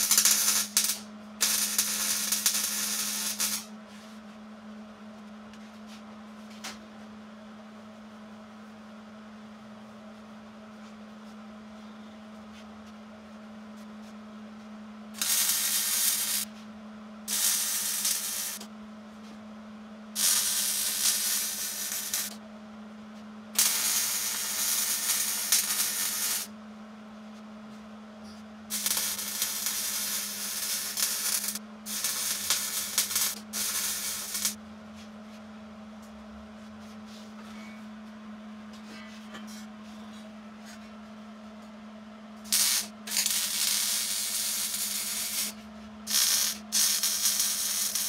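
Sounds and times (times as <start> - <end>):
welder crackling sizzle: 0.0 - 3.7, 15.2 - 16.5, 17.3 - 18.7, 20.2 - 22.4, 23.6 - 26.5, 28.7 - 34.6, 42.4 - 48.0
steady low hum: 0.0 - 48.0.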